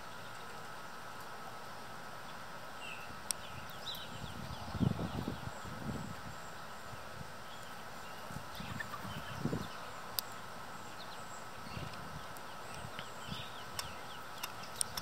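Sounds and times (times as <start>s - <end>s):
small birds chirping: 0.0s - 1.4s, 2.1s - 15.0s
faint steady hum: 0.0s - 15.0s.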